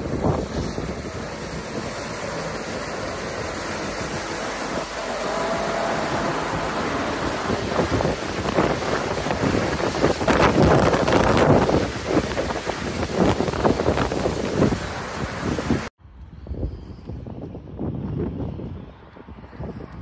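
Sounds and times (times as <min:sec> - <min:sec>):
vehicles driving through floodwater: 0:00.0 - 0:15.9
water splashing from wheels: 0:00.0 - 0:15.9
wind on microphone: 0:00.0 - 0:20.0.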